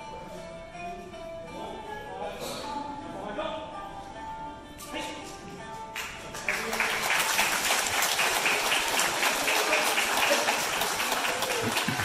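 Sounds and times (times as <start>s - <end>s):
children applauding: 6.3s - 12.0s.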